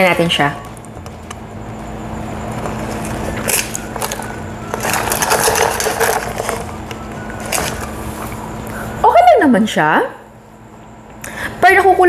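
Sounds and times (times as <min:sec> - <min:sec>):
ice rattling in plastic cup: 0:03.0 - 0:07.9.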